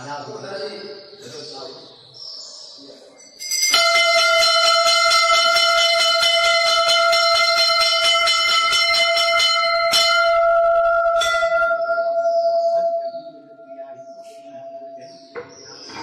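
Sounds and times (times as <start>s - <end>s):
temple bell ringing: 3.2s - 15.4s.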